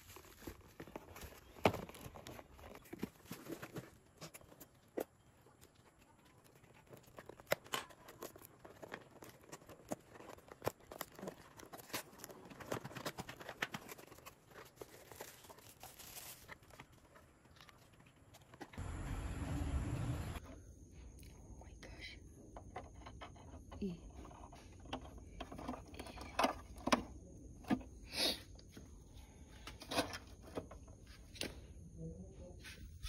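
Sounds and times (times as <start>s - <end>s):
tissue paper crinkling: 0.0s - 4.1s, 6.6s - 18.0s.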